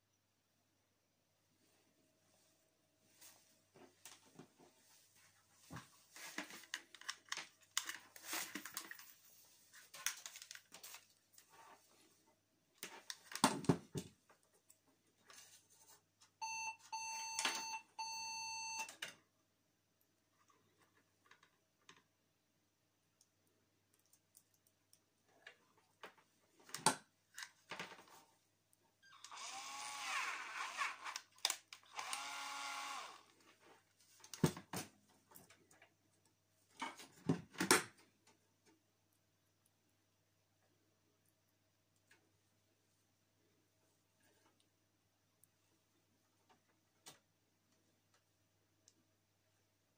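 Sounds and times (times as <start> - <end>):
plastic connectors clicking and rattling: 6.4 - 9.1
cordless drill whirring: 29.1 - 31.2, 31.8 - 33.3.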